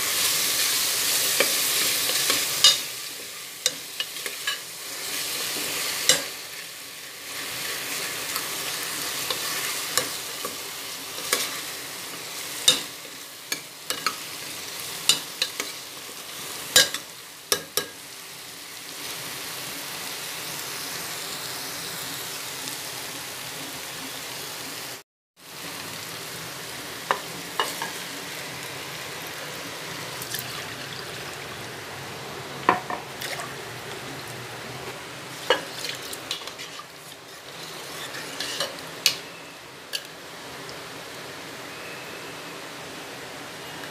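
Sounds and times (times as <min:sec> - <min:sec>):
vegetables sizzling in a pot: 0:00.0 - 0:43.9
spoon scraping a pot: 0:35.4 - 0:38.8.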